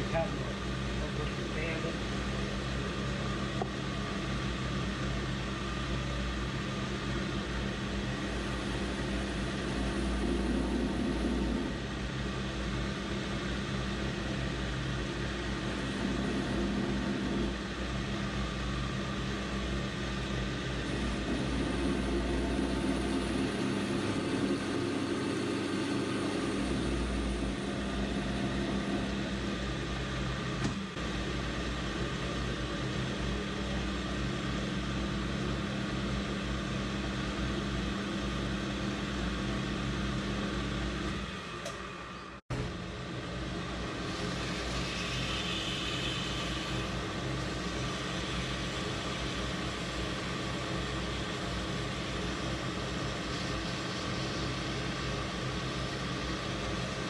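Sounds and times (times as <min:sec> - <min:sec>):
metal lathe motor hum: 0:06.5 - 0:32.2, 0:43.6 - 0:57.0
lathe tool cutting metal: 0:44.0 - 0:50.4.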